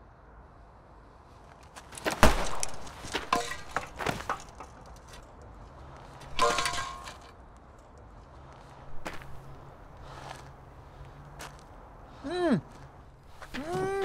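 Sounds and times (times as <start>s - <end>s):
rustling and scraping: 1.4s - 7.4s, 8.5s - 11.7s
rustling and knocks: 1.8s - 5.3s, 6.2s - 7.3s.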